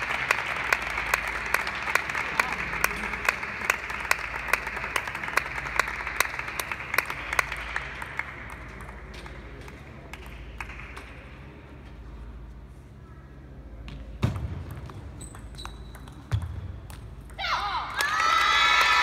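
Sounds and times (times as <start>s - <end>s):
spectators applauding: 0.0s - 11.0s
loud rhythmic claps: 0.0s - 11.5s.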